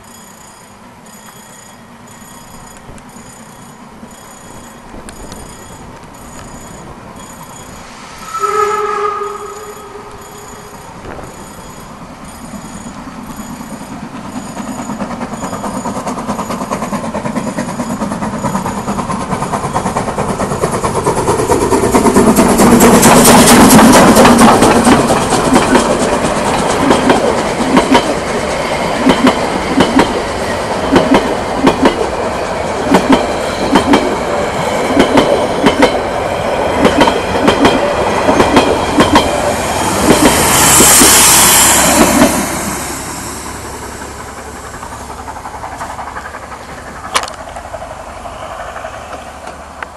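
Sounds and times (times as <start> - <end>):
level-crossing warning bell: 0.0 - 20.2
diesel railcar passing: 0.0 - 49.9
steam train passing: 0.0 - 49.9
wheels clacking over rail joints: 9.8 - 49.9.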